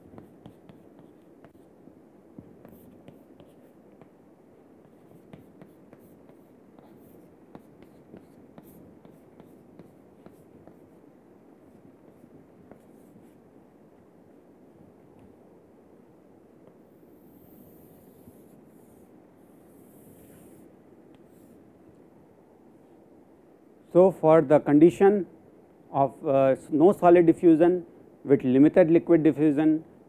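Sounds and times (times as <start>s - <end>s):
chalk scratching on chalkboard: 0.0s - 1.7s, 2.5s - 4.1s, 4.8s - 11.0s
low room noise: 0.0s - 30.0s.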